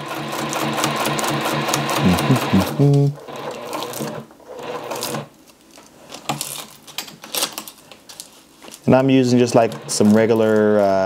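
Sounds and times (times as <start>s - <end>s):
sewing machine stitching: 0.0s - 5.3s, 9.2s - 10.7s.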